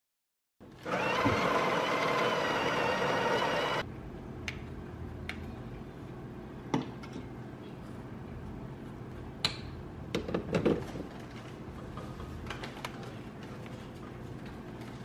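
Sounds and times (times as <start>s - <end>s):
coffee grinder running: 0.8s - 3.8s.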